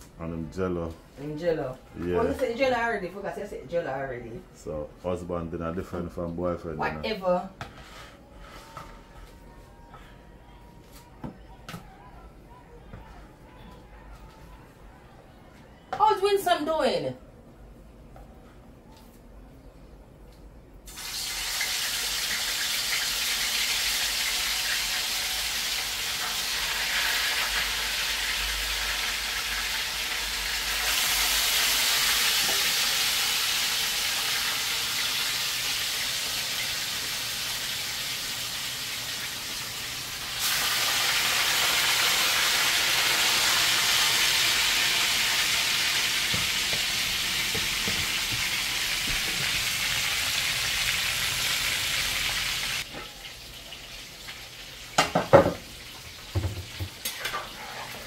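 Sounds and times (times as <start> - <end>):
fish frying in hot oil: 20.9 - 58.0.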